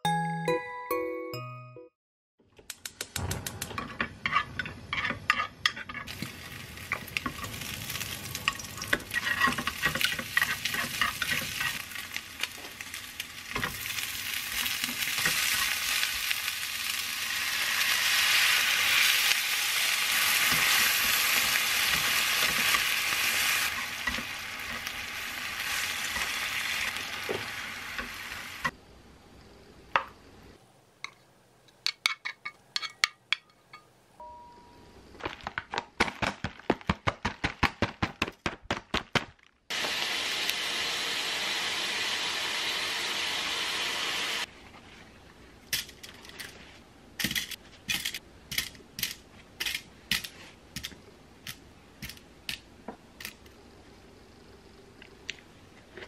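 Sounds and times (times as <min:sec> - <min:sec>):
food sizzling in a frying pan: 0:05.9 - 0:28.7, 0:39.7 - 0:44.5.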